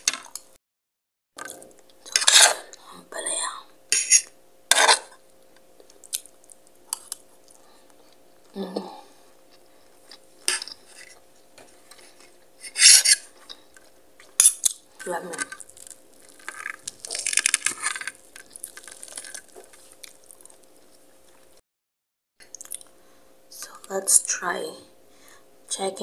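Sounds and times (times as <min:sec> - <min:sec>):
cutlery scraping a plate: 0:03.9 - 0:05.2, 0:12.6 - 0:13.3.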